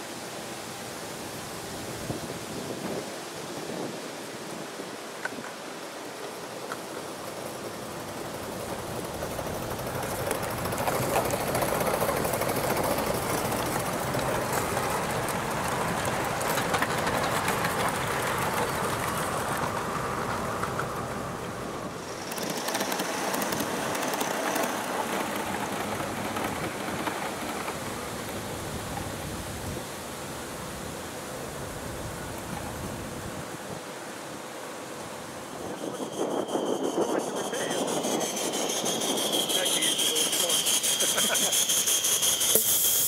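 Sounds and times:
model train wheels rattling on rails: 6.5s - 29.3s, 35.6s - 43.0s.

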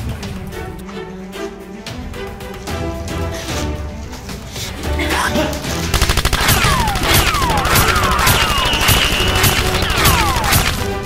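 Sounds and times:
automatic gunfire: 5.9s - 11.0s
bullet ricochet whistles: 6.4s - 10.9s.

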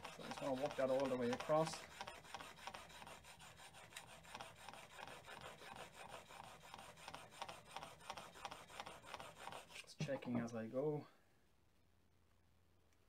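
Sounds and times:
blade scraping on water stone: 0.0s - 9.9s.

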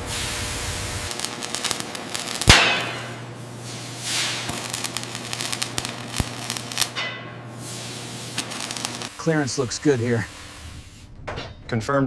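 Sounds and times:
hiss: 0.0s - 7.0s, 7.6s - 11.1s
arc welding crackling: 0.0s - 11.1s
sharp crack: 1.0s - 7.3s, 8.3s - 9.2s.

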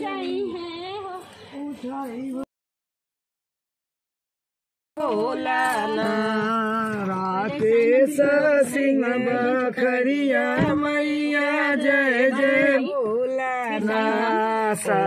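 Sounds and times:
chant-like singing: 5.0s - 15.0s.

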